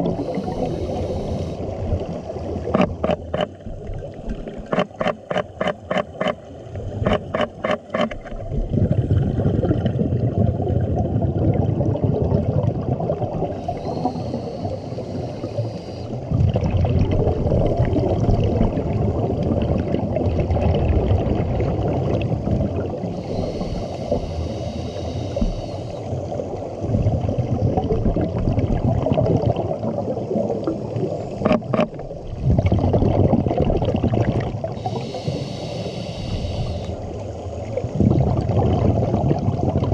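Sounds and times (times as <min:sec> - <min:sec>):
hissing inhalation through regulator: 0:00.0 - 0:01.8, 0:13.5 - 0:16.2, 0:23.1 - 0:26.2, 0:34.7 - 0:37.1
exhaled bubbles gurgling underwater: 0:00.0 - 0:39.9.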